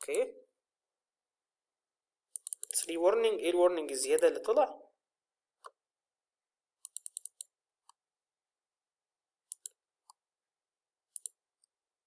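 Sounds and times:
computer mouse clicking: 0.0 - 0.3, 2.3 - 2.9, 6.8 - 8.0, 9.5 - 10.2, 11.1 - 11.7.

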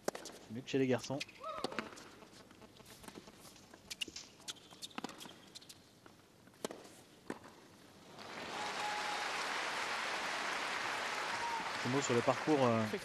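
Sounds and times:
crowd applause: 8.2 - 13.0.

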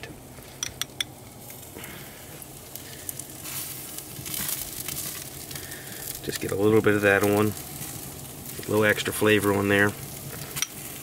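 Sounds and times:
chicken sizzling on a grill: 0.0 - 11.0
small crackles: 0.3 - 11.0.

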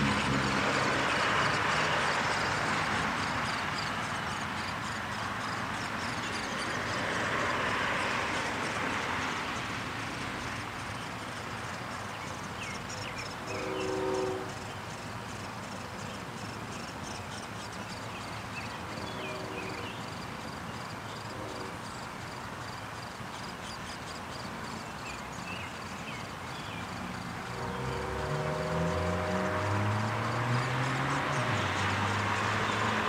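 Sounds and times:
outdoor background noise: 0.0 - 33.0
distant droning horn tone: 13.4 - 14.6, 19.0 - 20.0, 21.3 - 21.8, 27.4 - 32.0.

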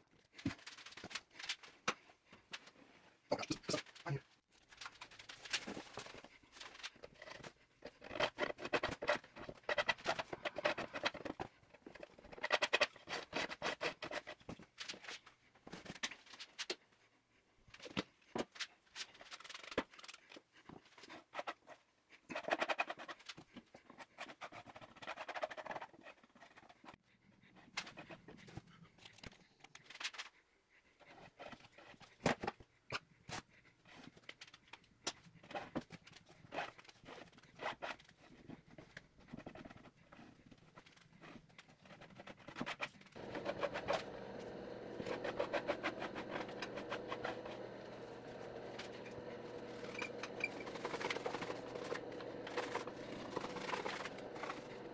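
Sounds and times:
metal scraper scraping paint: 42.3 - 54.9.

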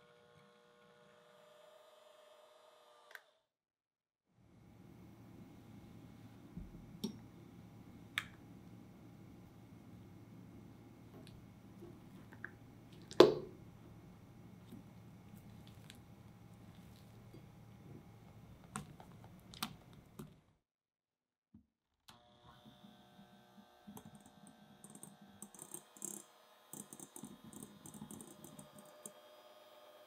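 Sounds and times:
electric hand mixer humming: 22.2 - 30.0.

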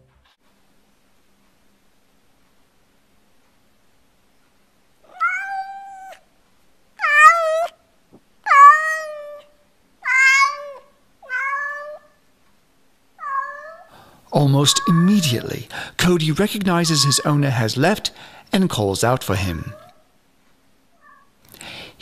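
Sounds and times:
cat meowing loudly: 5.1 - 6.2, 7.0 - 7.7, 8.4 - 12.2, 13.2 - 15.5, 16.8 - 17.4, 19.4 - 20.0.

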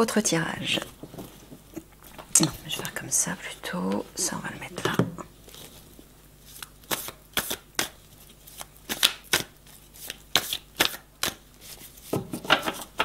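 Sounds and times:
cards being shuffled: 5.5 - 13.0.

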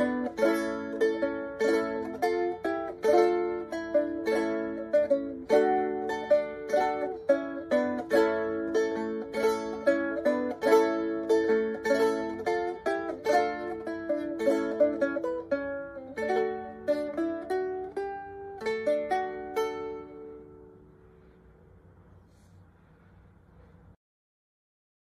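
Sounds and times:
guitar plucked and strummed: 0.0 - 20.8.

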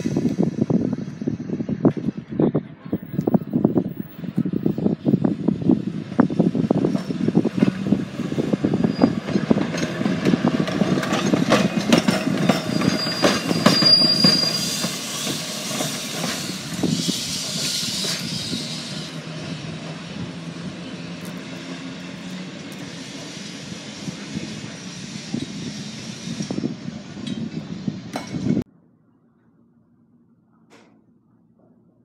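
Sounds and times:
streetcar wheels clacking on rails: 0.0 - 28.6
high wheel squeal: 8.6 - 9.9, 11.2 - 19.4.

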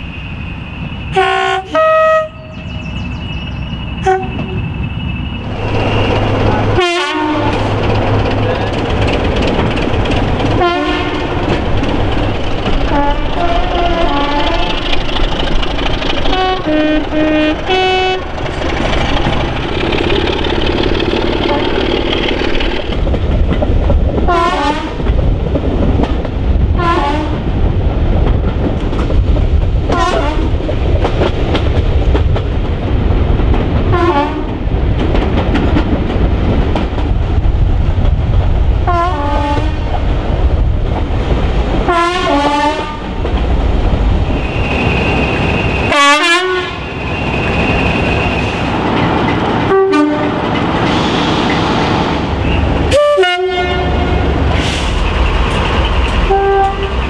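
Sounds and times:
train carriages rumbling: 0.0 - 57.0
train horn blasts: 1.1 - 2.6, 4.0 - 4.6, 6.8 - 7.7, 10.6 - 11.6, 12.9 - 14.7, 16.3 - 18.3, 24.3 - 25.0, 26.8 - 27.4, 29.9 - 30.5, 33.9 - 34.5, 38.9 - 39.8, 41.9 - 43.0, 45.9 - 46.9, 49.7 - 50.4, 52.4 - 54.3, 56.2 - 57.0.

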